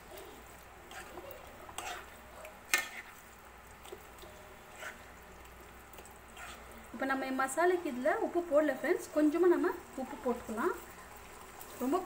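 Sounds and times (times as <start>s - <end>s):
spatula scraping a pan: 0.4s - 3.3s, 4.6s - 5.2s, 6.3s - 6.9s.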